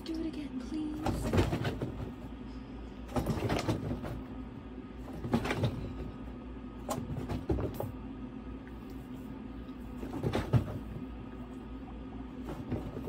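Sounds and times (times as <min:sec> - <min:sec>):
steady low hum: 0:00.0 - 0:13.0
guinea pig scrabbling on ramp: 0:01.0 - 0:02.3, 0:03.1 - 0:04.4, 0:05.0 - 0:06.1, 0:06.8 - 0:08.0, 0:09.8 - 0:11.1, 0:12.3 - 0:13.0.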